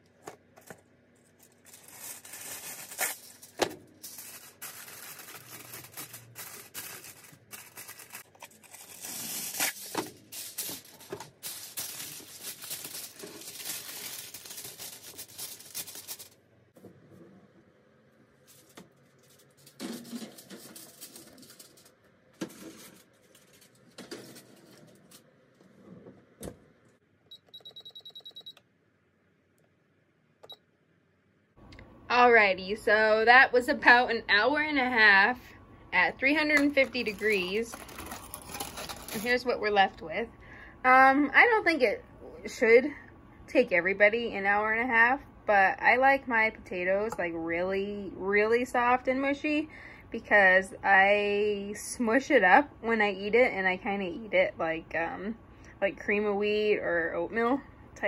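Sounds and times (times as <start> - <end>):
foil crinkling and tearing: 1.2 - 16.4, 18.4 - 21.9, 22.5 - 25.2, 36.6 - 39.4
oven control panel beeps: 27.3 - 28.6.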